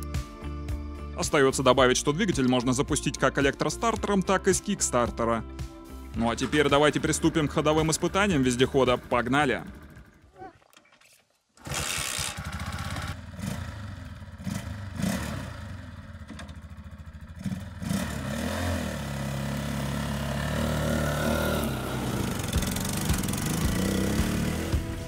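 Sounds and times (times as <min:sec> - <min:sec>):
motorcycle engine idling and revving: 0:05.0 - 0:10.4, 0:11.6 - 0:25.0.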